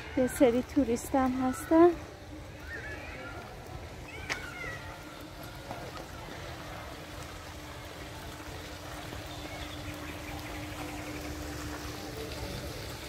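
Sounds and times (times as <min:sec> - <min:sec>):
faint constant hum: 0:00.0 - 0:13.0.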